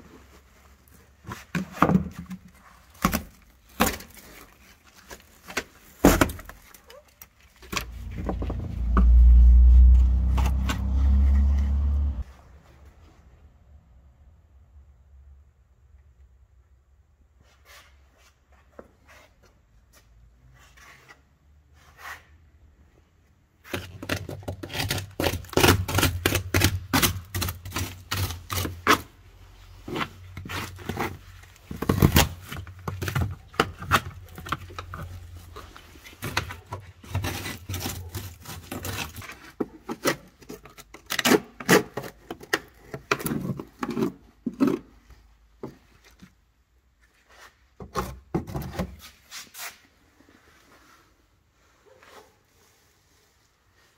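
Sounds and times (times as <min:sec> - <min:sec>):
low hum: 0:07.9 - 0:12.2.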